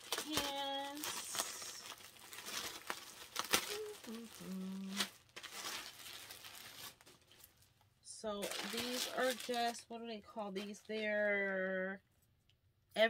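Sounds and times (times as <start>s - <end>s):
plastic bag crinkling: 0.0s - 11.6s
person humming: 3.6s - 5.1s.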